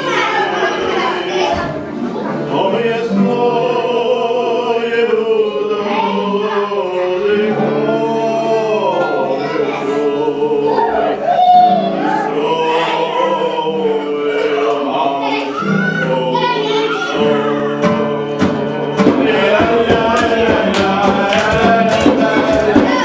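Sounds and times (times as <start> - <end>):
musical backing: 0.0 - 23.0
voices singing together: 0.0 - 23.0
sharp rhythmic percussive beats: 17.7 - 23.0.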